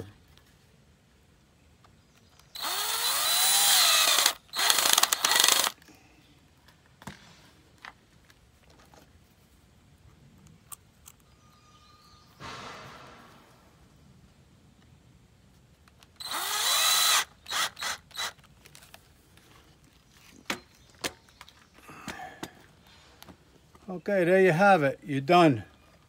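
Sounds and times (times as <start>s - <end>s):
power drill running: 2.6s - 5.8s, 16.2s - 18.4s.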